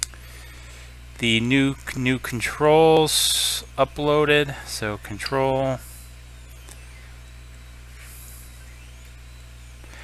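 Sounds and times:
electrical hum with fan hiss: 0.0s - 10.0s.

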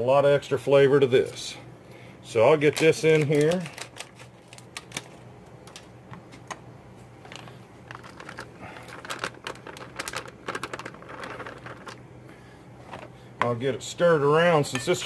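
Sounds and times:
plastic bag crinkling: 2.6s - 5.8s, 7.2s - 12.0s.

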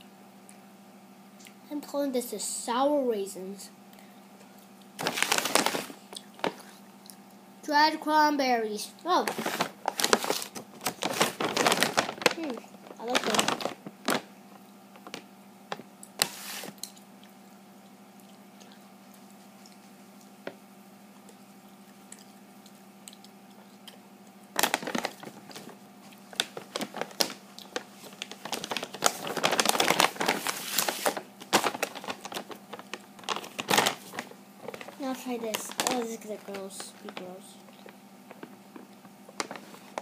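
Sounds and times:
faint steady hum: 0.0s - 40.0s
plastic bags crinkling: 5.0s - 6.7s, 9.1s - 16.9s, 24.5s - 40.0s.

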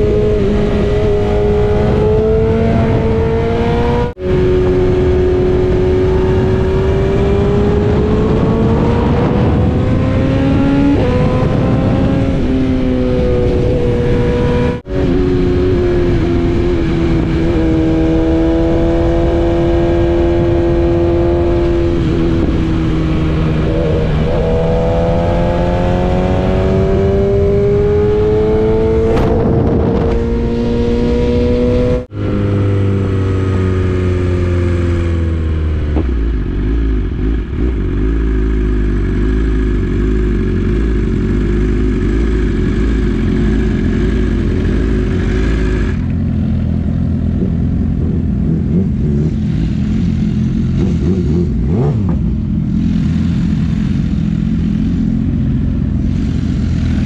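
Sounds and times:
wind rushing: 0.0s - 33.7s
motorcycle engine revving: 0.0s - 57.0s.

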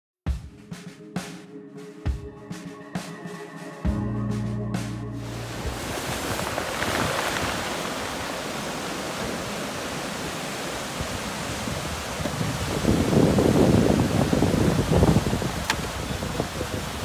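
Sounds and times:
ocean surf breaking: 5.2s - 17.0s.

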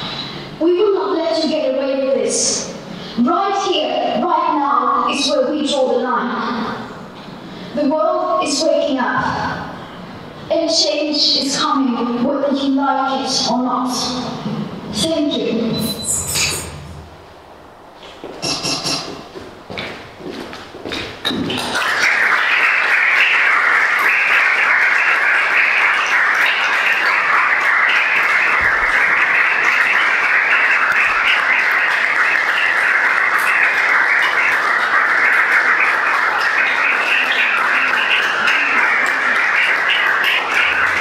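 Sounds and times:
audience applauding: 20.9s - 41.0s.

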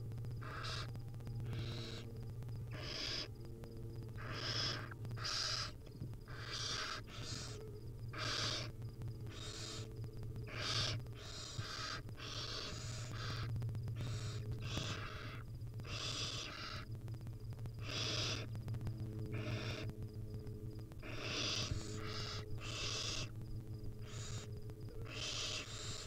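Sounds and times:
steady low hum: 0.0s - 26.0s
owl chicks hissing: 0.4s - 0.9s, 1.5s - 2.1s, 2.7s - 3.3s, 4.1s - 9.9s, 10.5s - 16.9s, 17.7s - 18.5s, 19.3s - 20.0s, 21.0s - 23.4s, 24.0s - 26.0s.

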